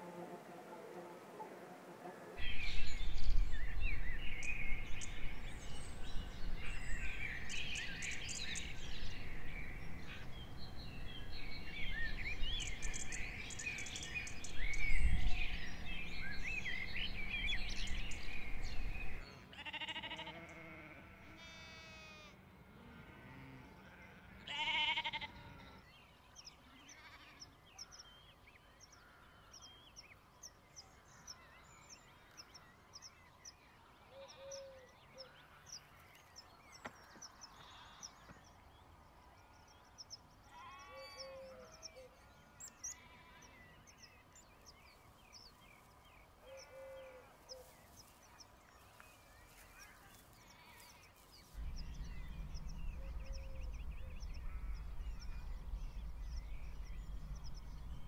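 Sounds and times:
birds chattering and chirping: 0:02.4 - 0:22.3, 0:23.2 - 0:58.0
sheep bleating: 0:19.1 - 0:25.8, 0:26.8 - 0:27.5
low rumble: 0:51.5 - 0:58.0.

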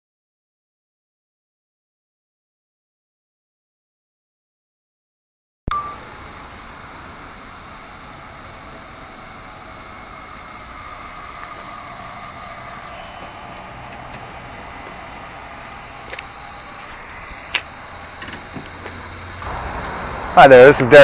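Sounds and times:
faint whine: 0:05.7 - 0:21.0
car rolling on asphalt: 0:06.1 - 0:21.0.

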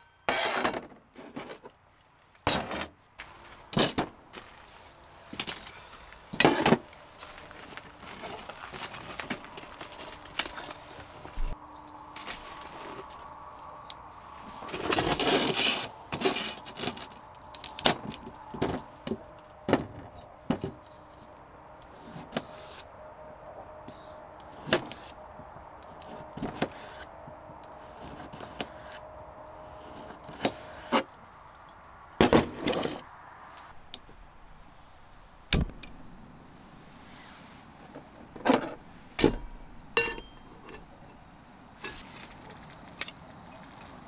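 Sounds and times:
knife scraping on metal plate: 0:00.0 - 0:00.8.

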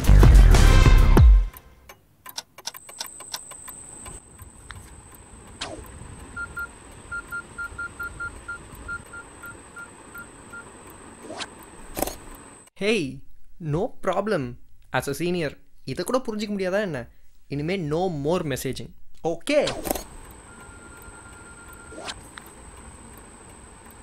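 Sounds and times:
faint high whine: 0:02.8 - 0:14.0, 0:19.7 - 0:24.0
phone keypad beeps: 0:06.3 - 0:10.7, 0:20.2 - 0:22.0.

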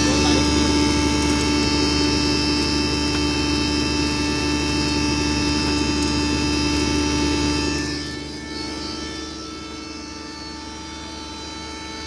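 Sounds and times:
grinder humming and whining: 0:00.0 - 0:12.0.

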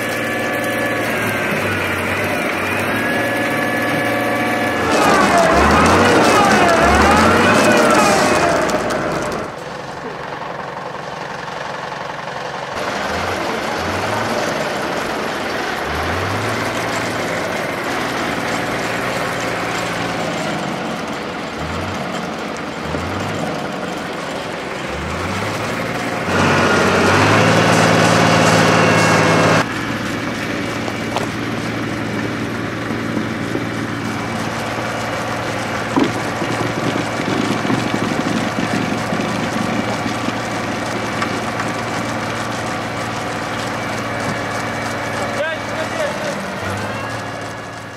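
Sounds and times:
tractor diesel engine idling: 0:00.0 - 0:47.9.

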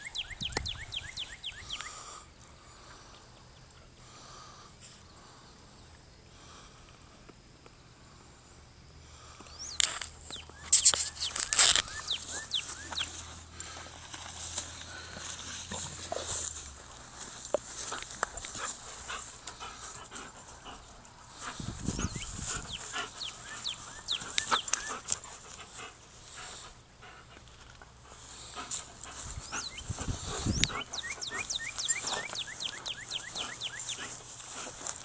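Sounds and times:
dog panting: 0:14.9 - 0:16.8, 0:17.7 - 0:35.0.

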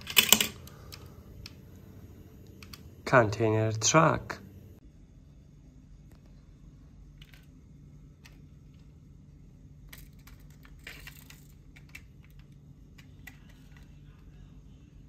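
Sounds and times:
low steady hum: 0:00.0 - 0:15.0
toy cars clicking and scraping: 0:09.9 - 0:14.0.

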